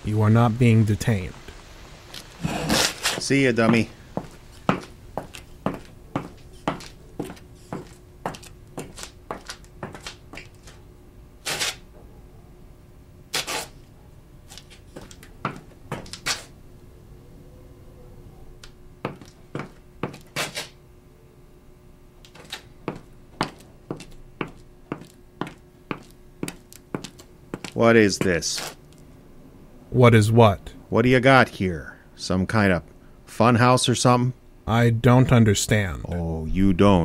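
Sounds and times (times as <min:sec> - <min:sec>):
faint steady hum: 0:00.0 - 0:37.0
footsteps on hard floor: 0:03.1 - 0:10.6, 0:19.1 - 0:20.3, 0:22.3 - 0:27.8.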